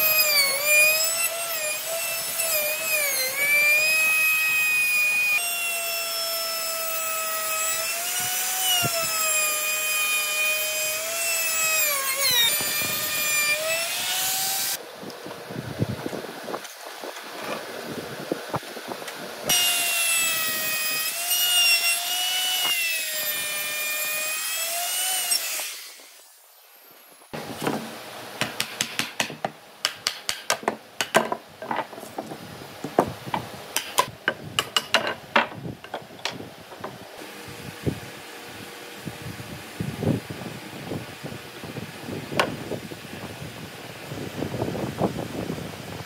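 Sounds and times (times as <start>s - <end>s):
small power tool whining: 0.0s - 14.8s, 19.5s - 26.4s.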